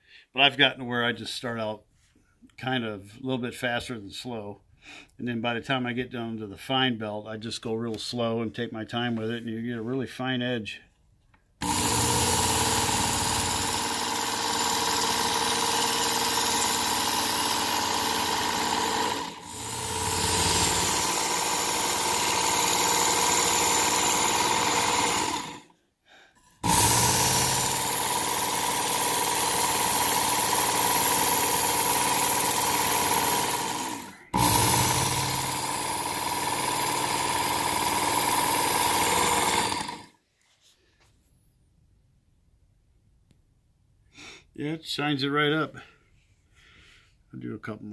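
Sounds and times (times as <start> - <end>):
electric knife sharpener motor whine: 11.6 - 25.7, 26.6 - 40.1.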